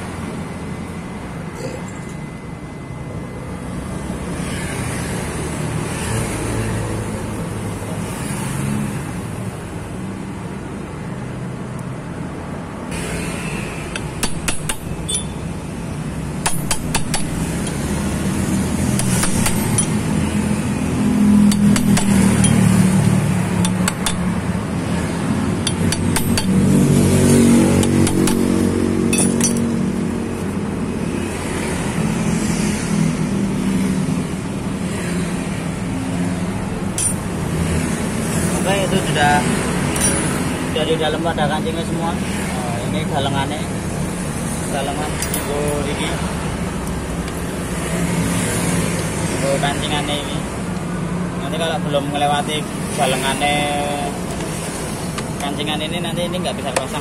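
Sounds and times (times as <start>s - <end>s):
low rumble of traffic: 0.0s - 57.0s
sharp metal taps: 13.9s - 15.5s, 16.4s - 17.8s, 18.9s - 20.1s, 21.4s - 22.8s, 23.6s - 24.4s, 25.6s - 29.7s, 37.0s - 37.3s, 39.9s - 40.4s.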